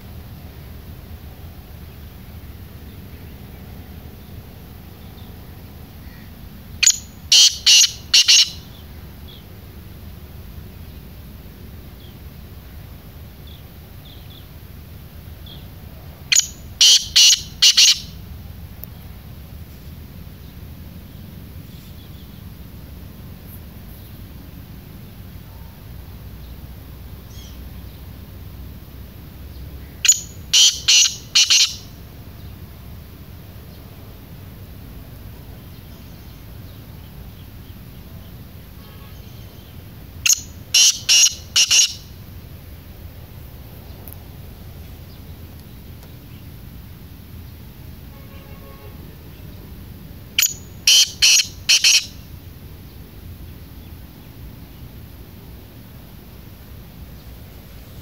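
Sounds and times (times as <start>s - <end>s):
small birds chirping: 2.8s - 9.6s, 13.4s - 14.6s, 15.3s - 18.2s, 18.8s - 22.7s, 26.4s - 28.3s, 29.3s - 32.8s, 35.1s - 42.2s, 43.8s - 46.7s, 50.4s - 55.1s
francolin calling: 2.8s - 9.8s, 15.3s - 18.3s, 25.0s - 28.5s, 29.3s - 33.8s, 35.5s - 42.3s, 49.0s - 55.0s
francolin harsh call: 6.0s - 9.5s, 16.3s - 18.3s, 29.8s - 32.5s, 38.6s - 42.3s, 50.3s - 52.4s.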